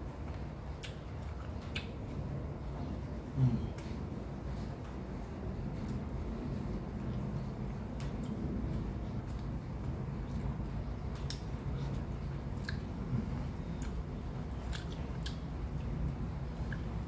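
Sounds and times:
close-up chewing with wet smacks: 0.0 - 17.0
steady low hum: 0.0 - 17.0.

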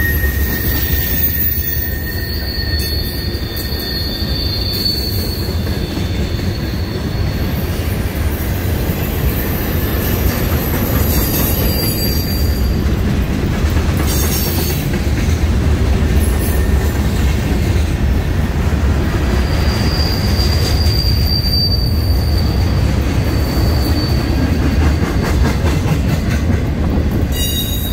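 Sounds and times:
high wheel squeal: 0.0 - 8.1, 9.3 - 12.8, 19.4 - 25.4, 27.3 - 27.9
train wheels rumbling on rail: 0.0 - 27.9.

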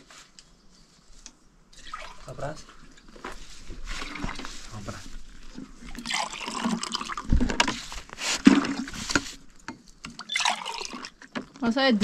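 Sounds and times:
water splashing and trickling: 1.7 - 3.0, 5.8 - 7.5, 8.4 - 12.0.

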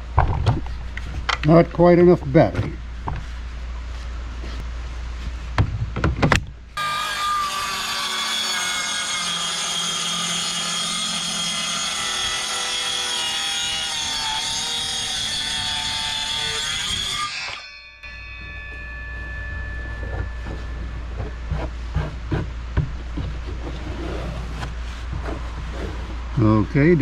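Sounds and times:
circular saw cutting wood: 6.8 - 22.5.

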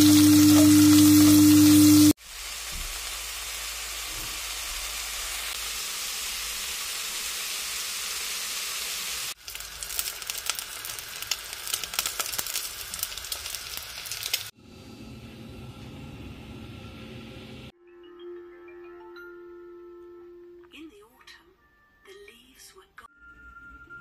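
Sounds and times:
noodles sizzling in a saucepan: 0.0 - 14.6.

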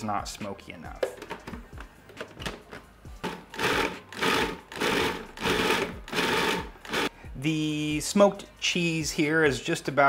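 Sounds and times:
food processor motor pulsing: 3.2 - 7.1.

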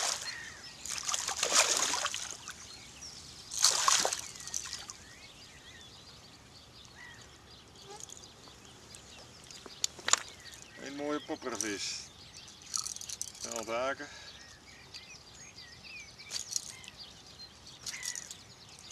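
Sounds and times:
fish thrashing in water: 0.0 - 2.6, 3.5 - 4.9.

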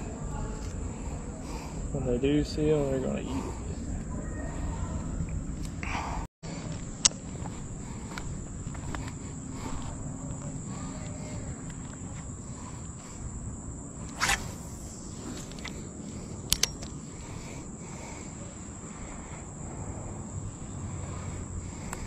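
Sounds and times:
insects droning: 0.0 - 22.0
sharp click: 16.5 - 17.0.

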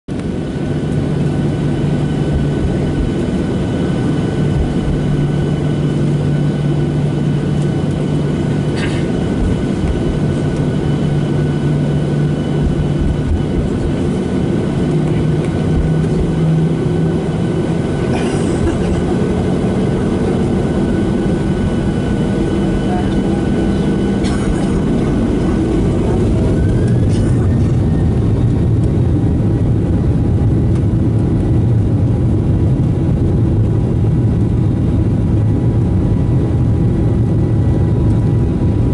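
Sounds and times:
aircraft cabin rumble: 0.1 - 38.9
jet engines humming: 0.1 - 38.9.

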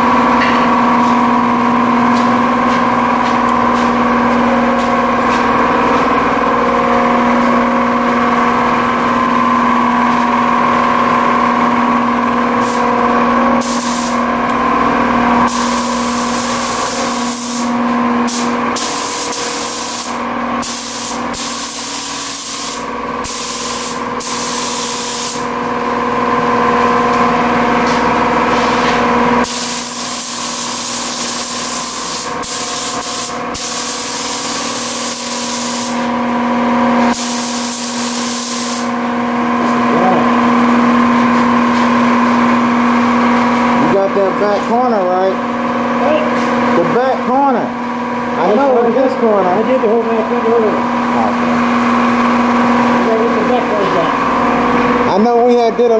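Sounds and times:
steady mechanical hum: 0.0 - 55.9
paint spray gun hissing: 13.6 - 14.3, 15.5 - 25.5, 29.4 - 36.1, 37.1 - 39.0.

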